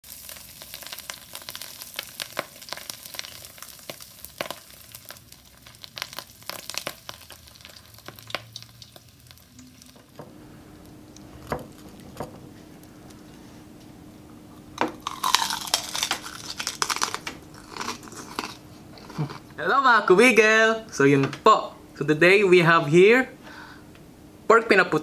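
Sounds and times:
hot oil sizzling and crackling: 0.0 - 13.8, 14.6 - 20.3.

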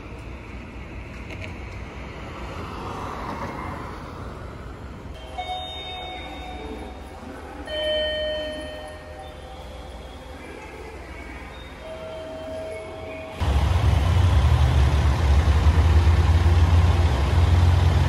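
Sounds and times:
train rumble: 0.0 - 18.0.

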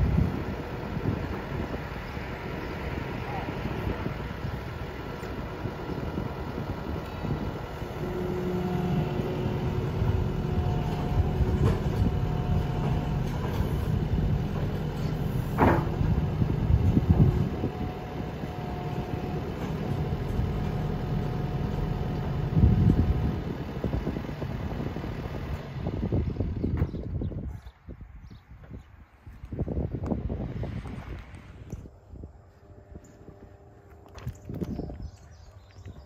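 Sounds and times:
hydraulic whine: 0.0 - 27.2
diesel engine under load: 0.0 - 36.0.

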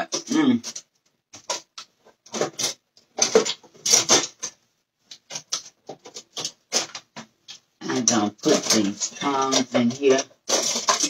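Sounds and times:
utensils clattering in drawer: 2.3 - 4.6, 8.0 - 11.0.

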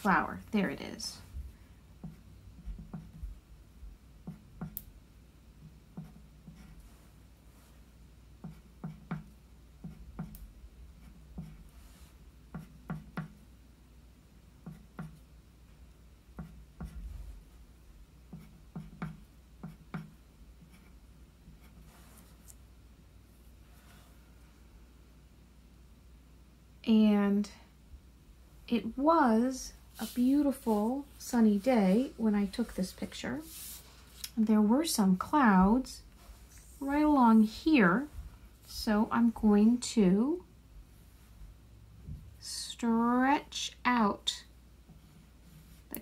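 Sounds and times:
pen writing on paper: 6.0 - 6.9, 8.4 - 10.4.

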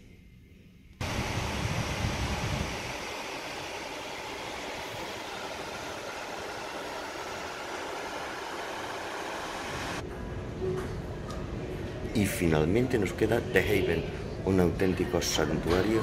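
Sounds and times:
wind rumble on microphone: 1.0 - 3.1
ship's churning wake: 1.0 - 10.0
wind rushing: 1.0 - 10.0.

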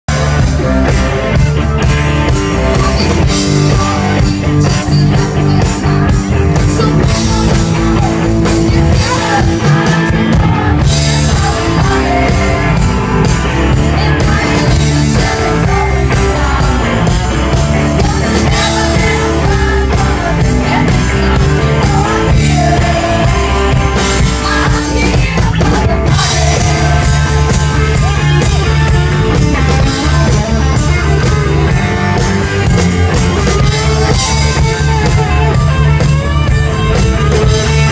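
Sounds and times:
country-rock band playing: 0.1 - 37.9
person singing: 2.3 - 32.0.

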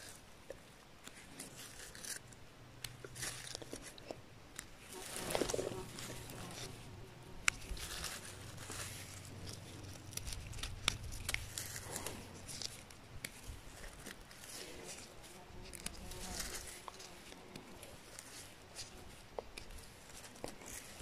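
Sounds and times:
gloved hands rustling: 0.0 - 21.0
knife trimming mushrooms: 1.0 - 21.0
small sharp clicks and snaps: 9.5 - 14.3.

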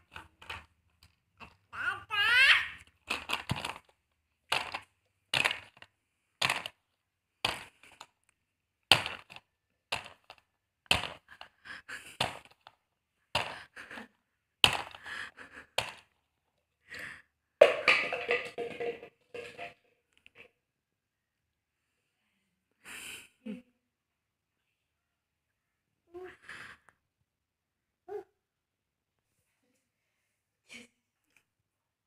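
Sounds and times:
plastic toy car knocking: 4.5 - 6.8, 8.9 - 11.6, 14.6 - 15.1, 17.6 - 19.8.

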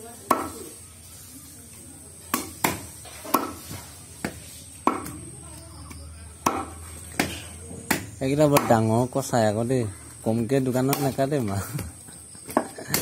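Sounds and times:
knife chopping on wooden block: 2.3 - 5.2, 6.4 - 8.8.

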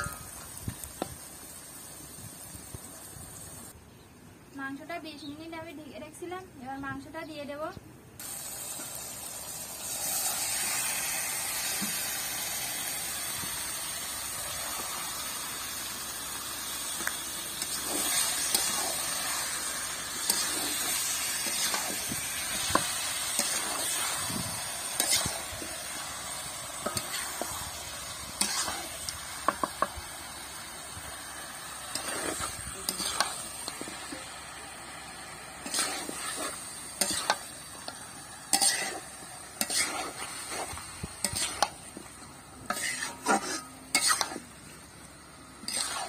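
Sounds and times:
chicken sizzling in hot oil: 0.0 - 3.8, 8.2 - 46.0
metal spatula scraping pan: 25.0 - 25.4, 28.4 - 28.9, 31.9 - 33.4, 35.6 - 41.8, 42.6 - 44.5, 45.6 - 46.0.

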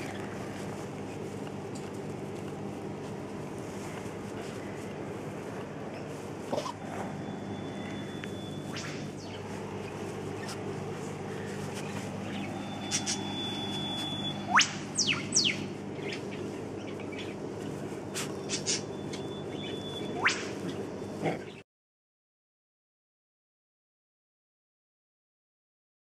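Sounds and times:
steady low hum: 0.0 - 21.6
birds whistling: 6.0 - 20.8
short bird chirps: 11.8 - 16.2.

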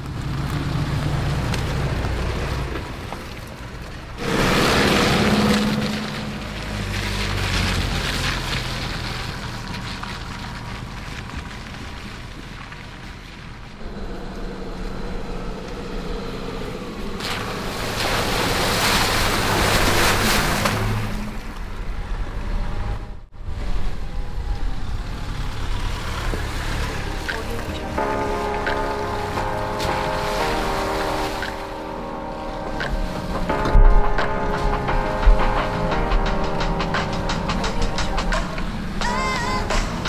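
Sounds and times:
car engine running: 0.0 - 19.9
water and mud rushing: 0.0 - 40.0.

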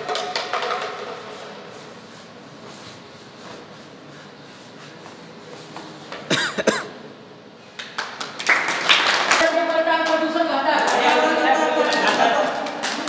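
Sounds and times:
low room murmur: 0.0 - 13.0
person coughing hard: 6.3 - 7.0.

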